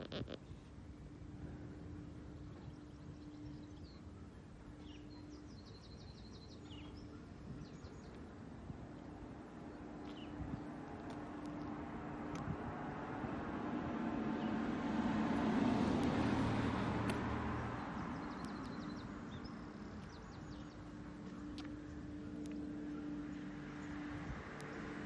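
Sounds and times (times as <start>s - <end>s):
steady low hum: 0.0s - 25.0s
vehicle passing: 9.2s - 25.0s.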